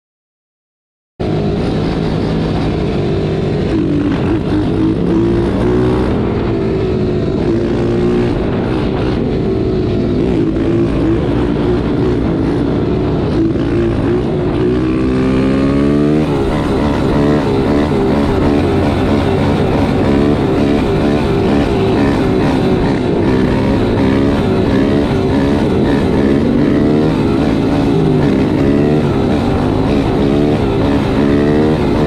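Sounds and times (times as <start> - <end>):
small motorbike engine running: 7.4 - 32.0.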